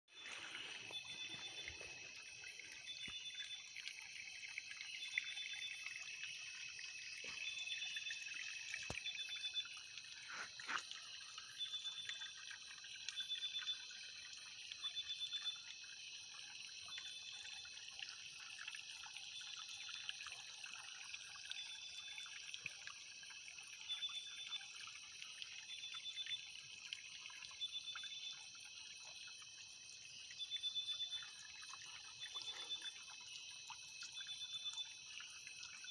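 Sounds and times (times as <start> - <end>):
insects trilling: 0.1 - 35.9
short high insect call: 0.2 - 12.4.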